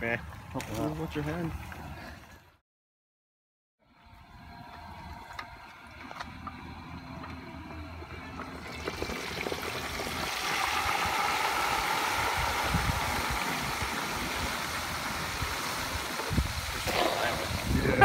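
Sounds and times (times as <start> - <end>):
oil bubbling and sizzling: 8.2 - 17.9.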